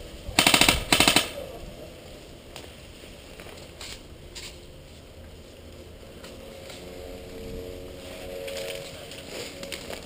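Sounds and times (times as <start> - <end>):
airsoft gun full-auto bursts: 0.4 - 1.4.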